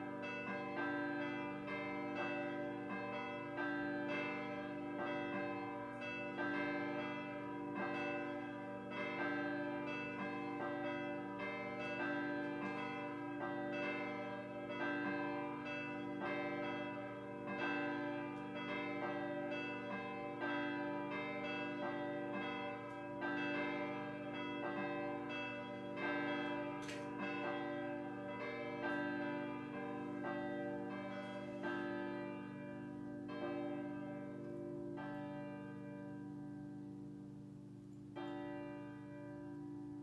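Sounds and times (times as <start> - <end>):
church bells pealing: 0.0 - 40.0.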